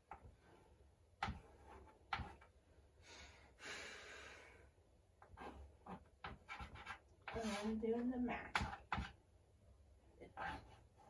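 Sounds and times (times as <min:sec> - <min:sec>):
chalk tapping and scratching: 0:00.0 - 0:02.6, 0:05.2 - 0:09.2, 0:10.2 - 0:11.0.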